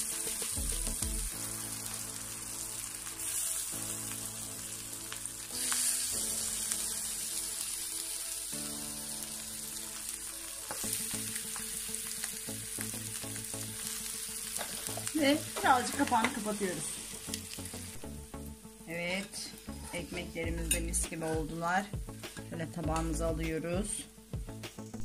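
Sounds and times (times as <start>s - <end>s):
bread sizzling on grill: 0.0s - 18.1s
soft background music: 0.0s - 25.0s.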